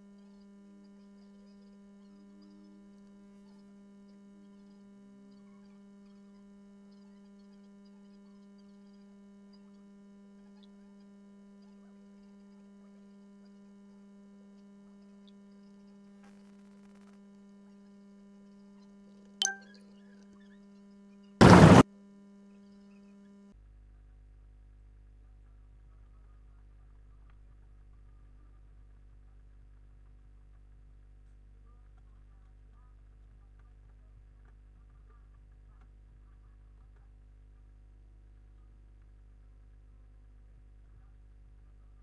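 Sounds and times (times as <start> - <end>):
sharp ringing click: 19.4 - 19.7
faint electrical hum: 21.4 - 21.8
loud noise burst: 21.4 - 21.8.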